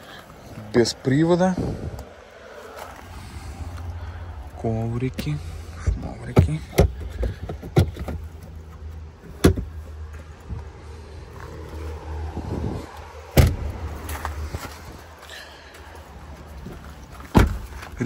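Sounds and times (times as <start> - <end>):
car boot knocks and thumps: 5.9 - 8.4, 9.3 - 9.8, 13.3 - 13.8, 17.2 - 18.0.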